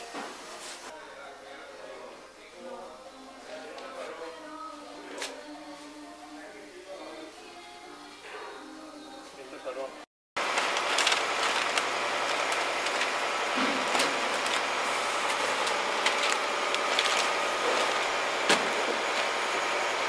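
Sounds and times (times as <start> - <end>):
plastic film crinkling: 10.4 - 20.0.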